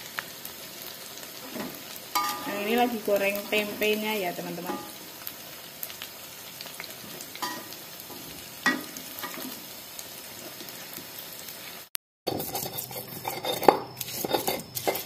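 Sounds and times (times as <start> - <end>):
food sizzling in hot oil: 0.0 - 15.0
pestle grinding in stone mortar: 12.3 - 15.0
spatula scraping a pan: 12.3 - 15.0.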